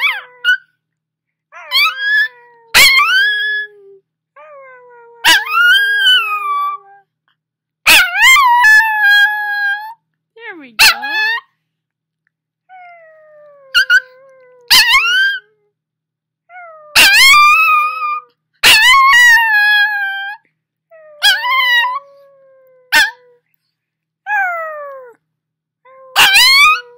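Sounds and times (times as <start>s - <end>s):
puppy howling: 0.0s - 0.6s, 1.5s - 7.1s, 7.9s - 10.0s, 10.8s - 11.5s, 12.7s - 15.6s, 16.5s - 23.4s, 24.3s - 25.2s, 25.9s - 26.9s.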